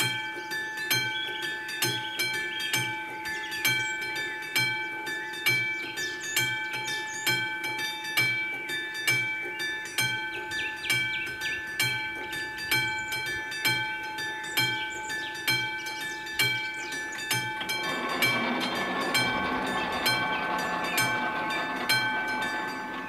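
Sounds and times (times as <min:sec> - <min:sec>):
level-crossing warning bell: 0:00.0 - 0:23.0
train rumble: 0:16.6 - 0:23.0.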